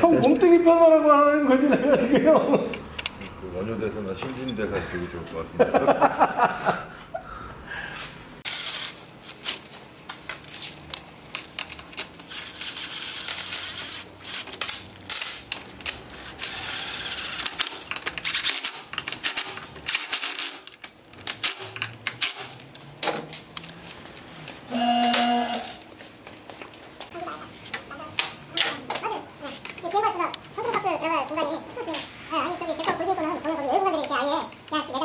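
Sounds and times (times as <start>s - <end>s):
metal tools clinking on bolts: 10.5s - 20.6s.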